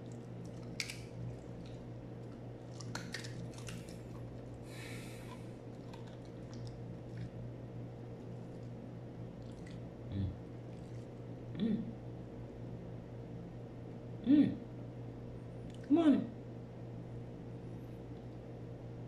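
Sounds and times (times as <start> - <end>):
dog chewing and licking: 0.0 - 9.9, 10.6 - 11.2
low hum: 0.0 - 19.0.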